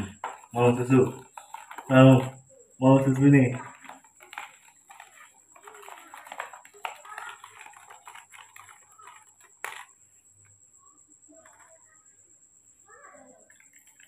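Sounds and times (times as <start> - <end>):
spoon stirring in plastic cup: 0.0 - 10.5, 13.4 - 14.0.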